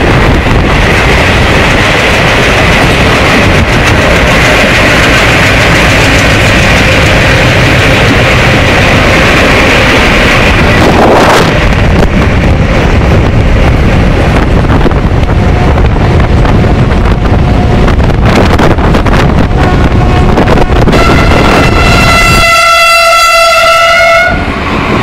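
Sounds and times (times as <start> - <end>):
train running at speed: 0.0 - 25.0
wind rush: 0.0 - 25.0
faint train horn tones: 19.5 - 24.6.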